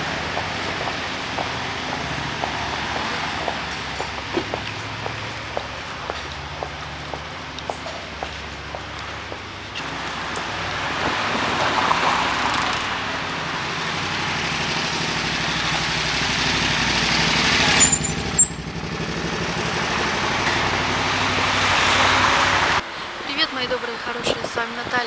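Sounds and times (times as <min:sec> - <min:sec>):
road noise: 0:00.0 - 0:25.0
vehicle engine running: 0:13.0 - 0:21.6
brief high squeaks: 0:17.8 - 0:18.6.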